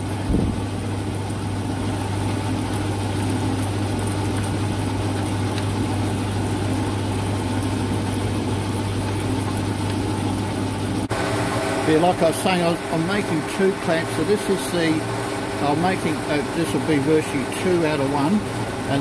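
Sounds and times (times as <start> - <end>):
milling machine humming: 0.0 - 19.0.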